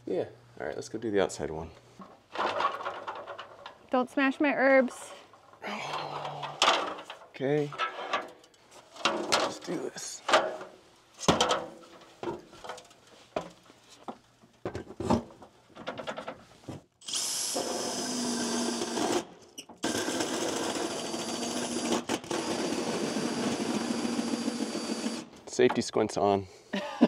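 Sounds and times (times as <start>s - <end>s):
power drill whining through wall: 17.0s - 25.4s.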